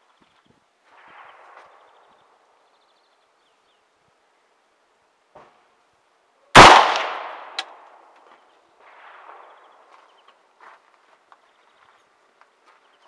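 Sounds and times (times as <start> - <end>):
rifle shot echoing: 6.6 - 7.9.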